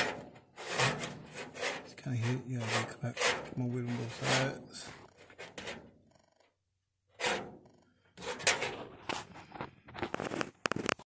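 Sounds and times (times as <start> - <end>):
metal parts knocking and scraping: 0.0 - 10.4.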